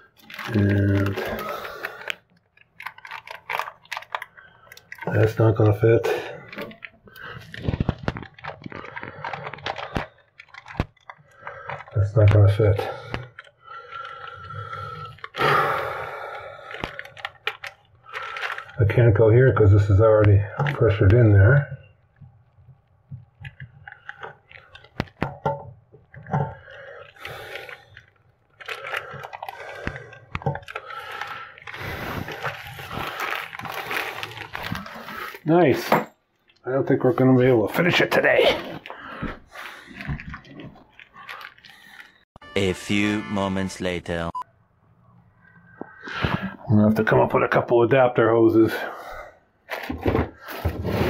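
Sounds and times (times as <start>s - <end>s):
plastic bag crinkling: 0.0s - 19.0s, 23.4s - 25.3s, 26.1s - 35.5s, 37.7s - 42.3s
small parts clicking in bag: 0.1s - 5.7s, 6.5s - 12.4s, 16.6s - 18.8s.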